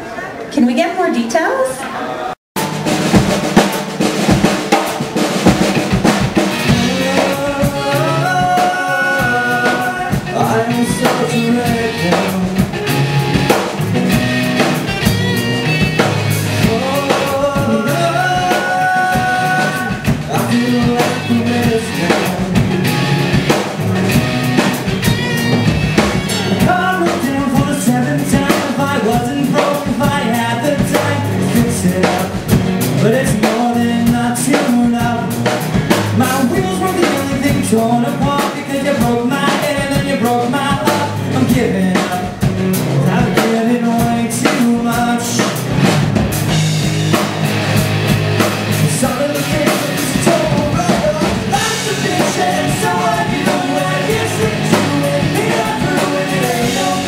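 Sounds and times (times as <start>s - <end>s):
bass guitar: 2.6s - 57.0s
drum kit steady beat: 2.6s - 57.0s
electric guitars: 2.6s - 57.0s
man singing: 6.5s - 13.6s, 16.5s - 23.2s, 26.3s - 45.7s, 48.8s - 57.0s.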